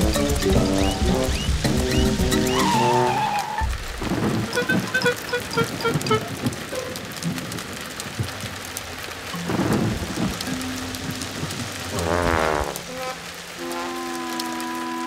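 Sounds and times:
wavering pitched sound: 0:00.0 - 0:03.7
plucked music notes: 0:00.0 - 0:06.7, 0:09.4 - 0:15.0
thunder rumble: 0:00.0 - 0:08.5, 0:09.3 - 0:13.0
heavy rain: 0:00.0 - 0:15.0.

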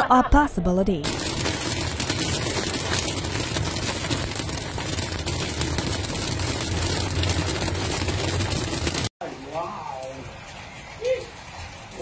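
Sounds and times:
heavy rain on car roof: 0:01.0 - 0:09.1.

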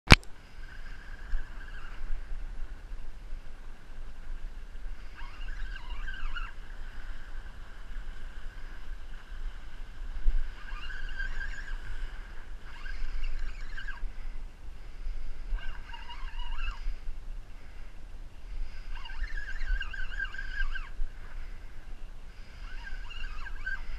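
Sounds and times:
wind rumbling on microphone: 0:00.1 - 0:23.9
high-pitched squeals: 0:15.5 - 0:16.9, 0:18.6 - 0:21.0, 0:22.4 - 0:23.9.

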